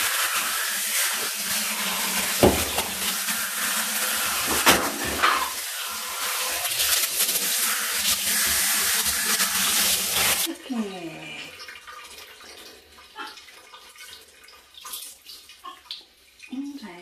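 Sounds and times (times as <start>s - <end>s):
water spraying from shower head: 0.0s - 10.5s
short sharp knocks: 2.4s - 3.0s.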